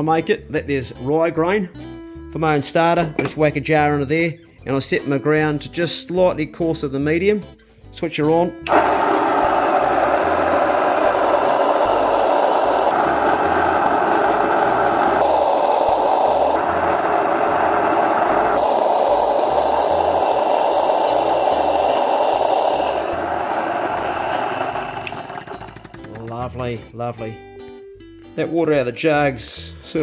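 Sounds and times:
electric grain mill grinding: 8.7 - 26.3.

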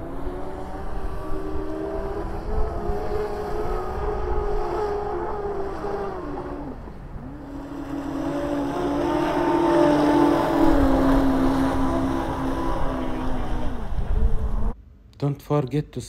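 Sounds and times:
electric boat motors whining: 0.0 - 14.8.

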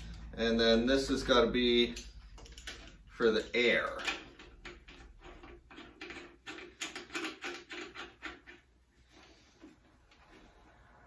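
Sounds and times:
air-line connector clicks and rattles: 1.9 - 8.7.

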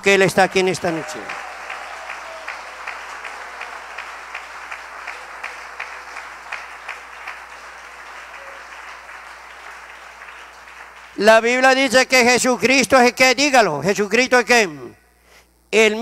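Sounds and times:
rhythmic clapping: 0.0 - 12.5
congregation applauding: 0.0 - 13.1.

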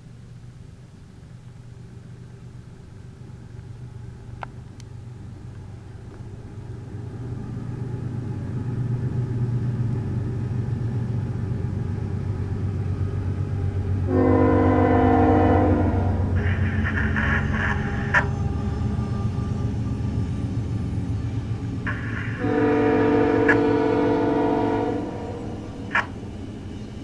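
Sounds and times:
locomotive engine rumble: 0.0 - 27.0
locomotive horn: 14.1 - 20.0, 21.9 - 26.2.

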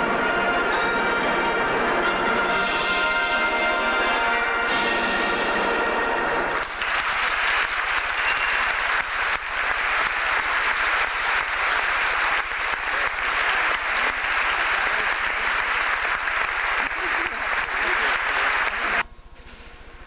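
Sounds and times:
concert band final chord: 0.0 - 19.0
audience applause: 6.2 - 19.0.

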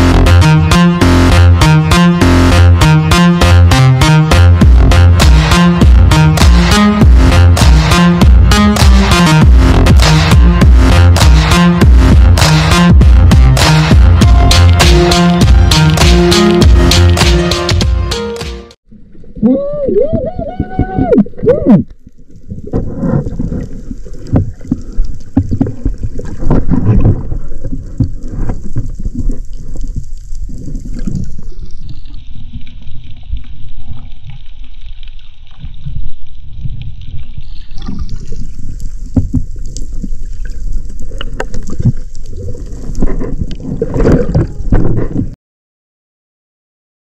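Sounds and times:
water rushing and gurgling: 18.9 - 45.3.

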